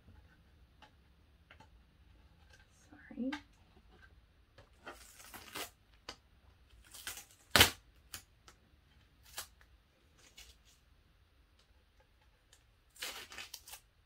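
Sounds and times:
tape being peeled off: 4.9s - 6.2s, 6.8s - 8.3s, 12.9s - 13.9s.

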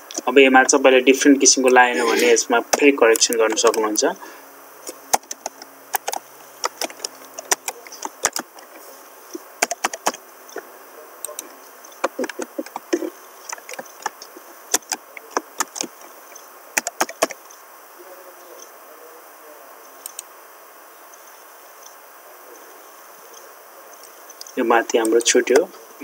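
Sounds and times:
faint hiss: 0.0s - 26.0s
computer keyboard keys clicking: 9.6s - 10.2s, 16.8s - 17.4s.

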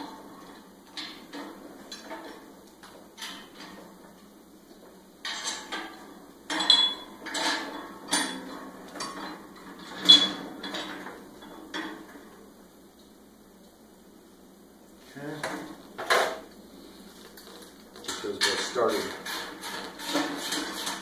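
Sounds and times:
metal hardware clinking and clanking: 5.2s - 12.0s, 18.0s - 20.3s.

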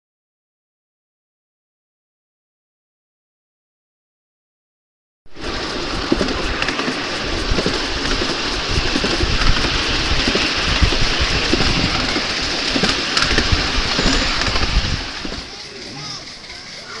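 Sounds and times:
train wheels rumbling on rails: 5.3s - 17.0s
wheel clicks and knocks: 5.4s - 17.0s.

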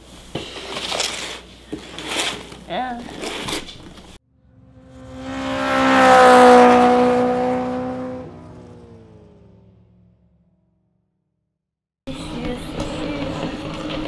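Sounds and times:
race car passing by: 4.3s - 10.2s.

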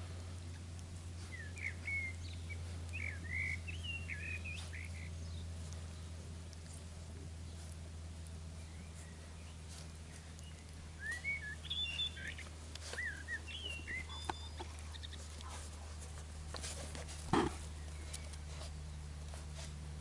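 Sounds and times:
steady low hum: 0.0s - 20.0s
bird chirping: 0.5s - 6.2s, 8.5s - 15.6s.

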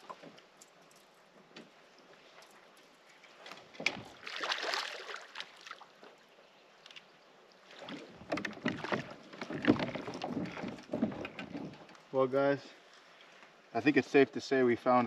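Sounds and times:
water splashing: 2.3s - 6.4s, 7.6s - 11.3s
knocks against a kayak: 8.2s - 11.8s.

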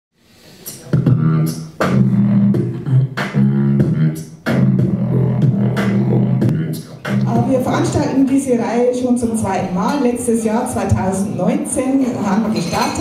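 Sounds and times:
beatboxing percussive hits: 0.3s - 8.5s
beatboxing humming bass line: 0.6s - 8.6s.

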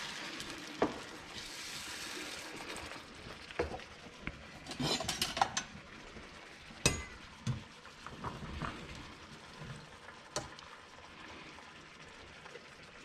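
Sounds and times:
spoon clinking against metal pot: 6.9s - 7.2s.

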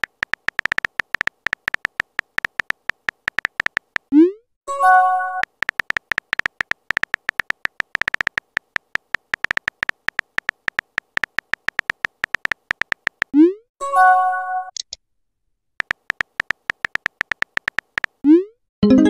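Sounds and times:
rapid typing beeps: 0.0s - 4.3s, 5.4s - 13.6s, 15.8s - 18.5s.

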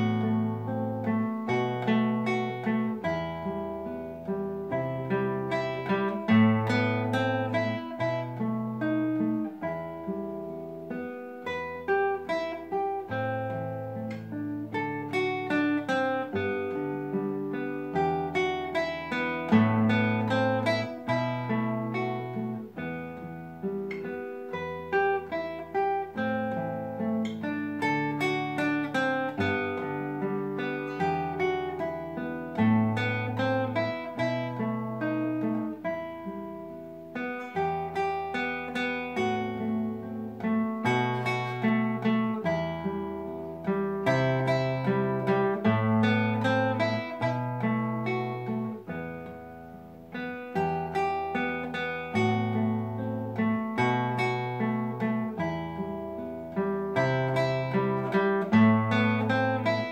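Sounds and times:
classical guitar fingerstyle: 0.0s - 59.9s.

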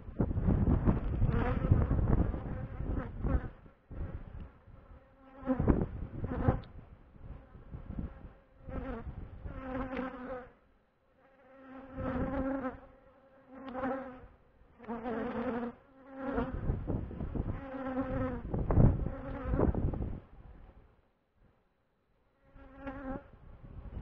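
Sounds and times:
bees buzzing past: 11.2s - 19.8s, 22.4s - 24.0s.

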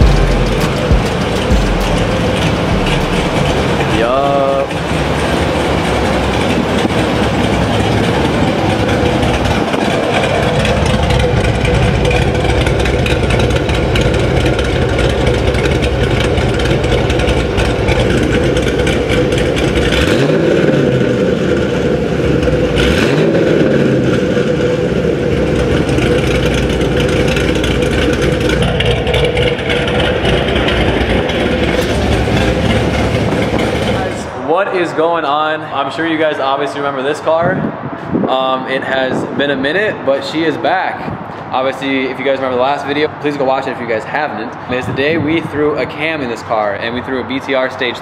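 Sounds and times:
car engine idling and revving: 0.0s - 36.4s.

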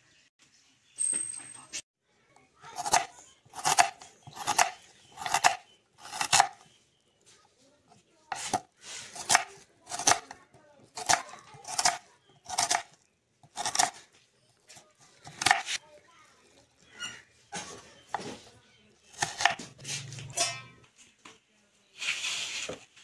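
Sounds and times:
knife slicing onion on wooden board: 2.8s - 6.6s, 8.3s - 10.4s, 11.0s - 14.0s, 14.7s - 15.8s, 19.1s - 20.2s.

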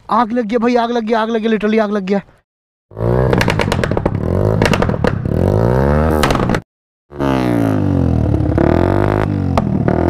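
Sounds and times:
motorcycle engine revving: 2.9s - 10.0s
exhaust pops: 3.0s - 6.6s.

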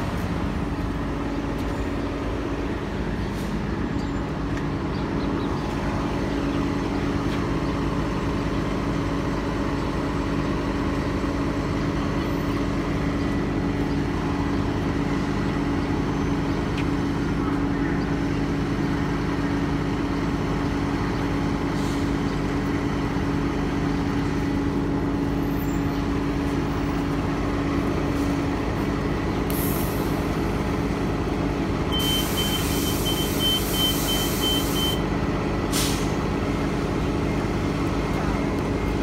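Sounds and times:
bus engine running: 0.0s - 39.0s
air brake hiss: 21.8s - 22.1s, 29.5s - 30.2s, 32.0s - 35.0s, 35.7s - 36.2s.

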